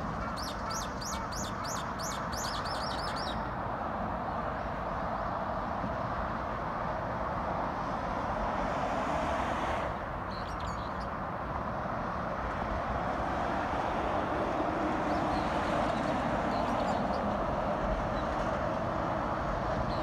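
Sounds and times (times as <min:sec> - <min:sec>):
road traffic passing: 0:00.0 - 0:20.0.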